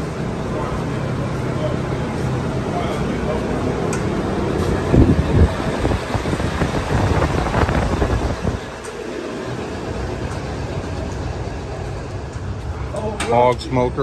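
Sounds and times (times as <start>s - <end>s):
wind buffeting microphone: 4.6s - 9.0s.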